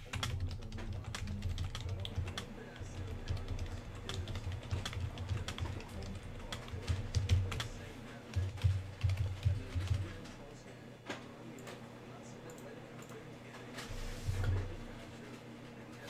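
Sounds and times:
keyboard typing: 0.0s - 10.5s.

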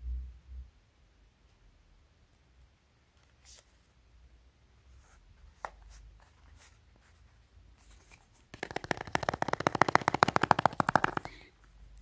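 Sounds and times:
fast scratching on cardboard: 8.6s - 11.4s.

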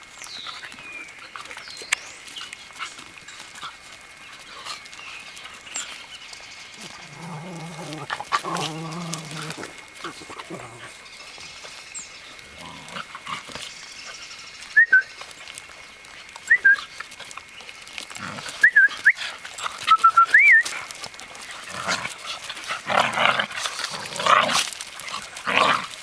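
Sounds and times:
dogs growling playfully: 0.4s - 14.4s, 15.4s - 20.0s, 20.6s - 26.0s
dogs whining and yelping: 12.7s - 23.1s.

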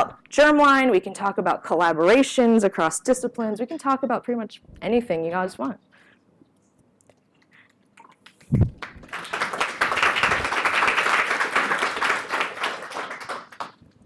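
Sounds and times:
audience applauding: 8.4s - 13.8s.

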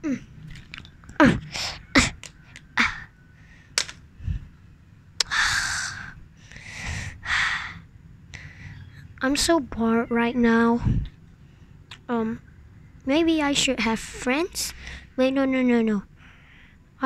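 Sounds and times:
child hissing breaths: 5.2s - 7.8s.

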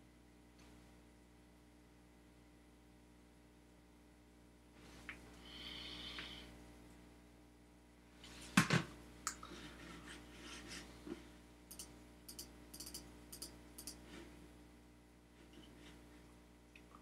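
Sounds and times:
computer keyboard typing: 11.7s - 14.0s.

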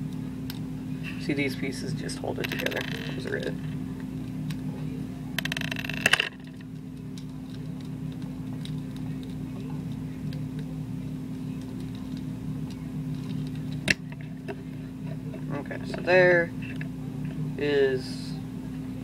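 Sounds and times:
steady low hum: 0.0s - 19.0s
plastic pieces clicking and rattling: 2.4s - 3.5s, 5.4s - 9.4s.

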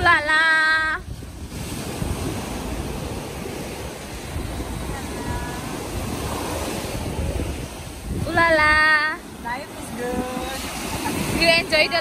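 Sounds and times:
small waves breaking on sand: 0.0s - 12.0s
wind buffeting microphone: 0.0s - 12.0s.

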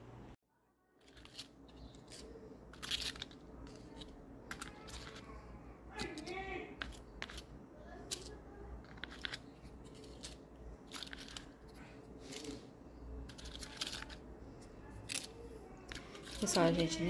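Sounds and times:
paper rustles and crinkles: 13.3s - 14.2s.

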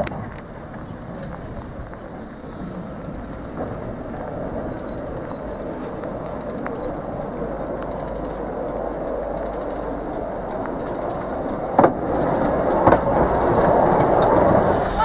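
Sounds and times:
faint ticking: 3.0s - 3.9s, 4.6s - 7.0s, 7.7s - 8.5s, 9.1s - 15.0s
metallic clanks: 7.9s - 8.4s, 9.3s - 10.0s, 10.7s - 15.0s.

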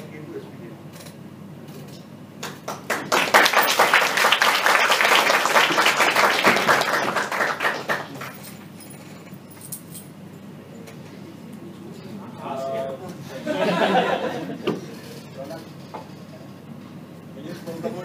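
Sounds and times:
small audience clapping: 2.4s - 8.7s.

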